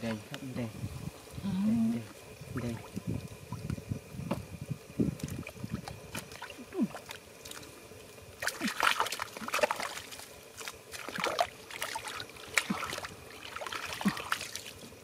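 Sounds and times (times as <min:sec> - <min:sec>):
hands sloshing through muddy water: 0:08.4 - 0:14.9
water dripping: 0:08.4 - 0:14.9.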